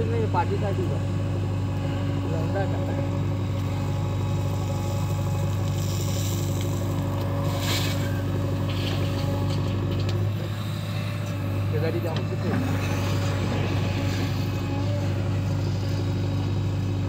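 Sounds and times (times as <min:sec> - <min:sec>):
diesel engine running under load: 0:00.0 - 0:17.0.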